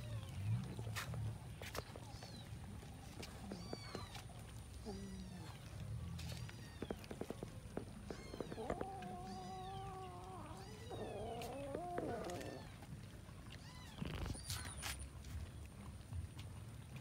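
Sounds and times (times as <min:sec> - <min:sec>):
clicks of eating: 0:00.4 - 0:17.0
cat yowling: 0:08.1 - 0:12.8.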